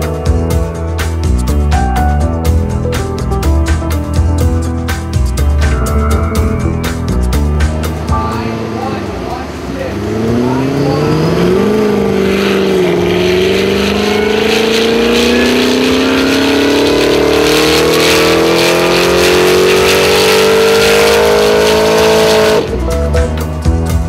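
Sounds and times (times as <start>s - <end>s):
car engine under load on dyno: 7.9s - 22.7s.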